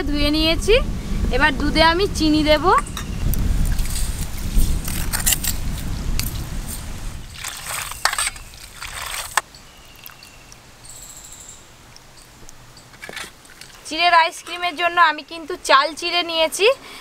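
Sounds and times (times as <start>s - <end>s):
low rumble: 0.0s - 7.6s
water sloshing and dribbling: 3.6s - 5.4s, 7.2s - 10.4s, 13.0s - 13.9s.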